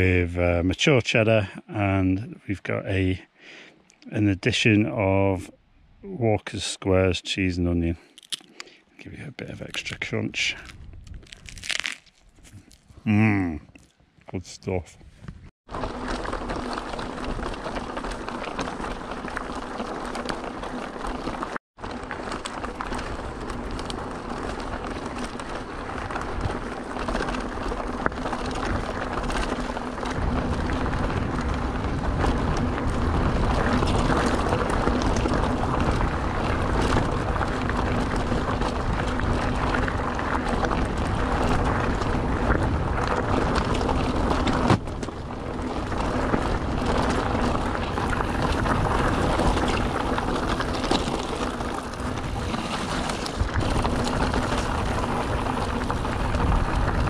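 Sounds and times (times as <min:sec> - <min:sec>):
bike tyres rattling on rough trail: 0:09.5 - 0:13.0, 0:15.2 - 0:57.0.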